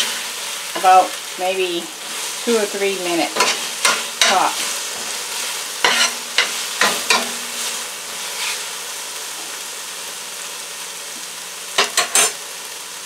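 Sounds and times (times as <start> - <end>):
vegetables sizzling in oil: 0.0 - 13.0
utensil scraping pan: 3.3 - 8.7.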